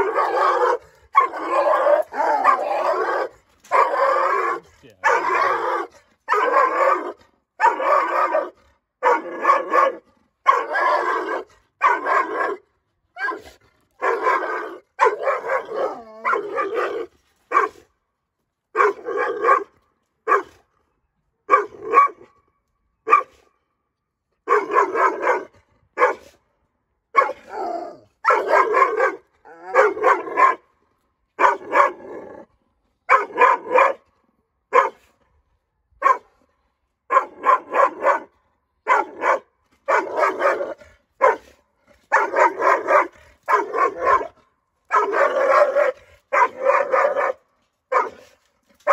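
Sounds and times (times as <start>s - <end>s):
dog barking: 0.0s - 12.6s, 13.2s - 17.8s, 18.8s - 19.7s, 20.3s - 20.6s, 21.5s - 22.3s, 23.1s - 23.4s, 24.5s - 26.4s, 27.2s - 27.5s, 28.2s - 30.6s, 31.4s - 32.0s, 33.1s - 34.0s, 34.7s - 35.1s, 36.0s - 36.3s, 37.1s - 41.5s, 42.1s - 48.9s.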